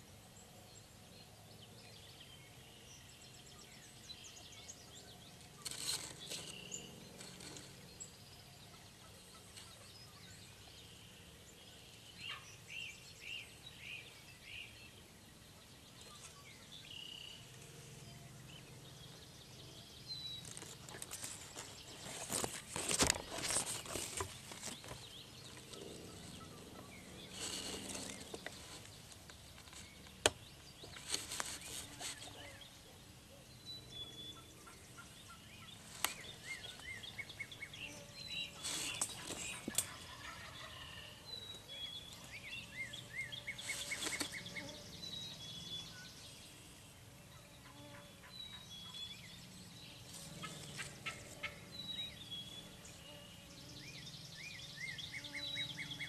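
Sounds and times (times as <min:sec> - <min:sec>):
small birds chirping: 0:00.0 - 0:56.0
brush rustling: 0:05.3 - 0:08.1, 0:20.2 - 0:32.6, 0:35.3 - 0:40.6, 0:41.8 - 0:44.9.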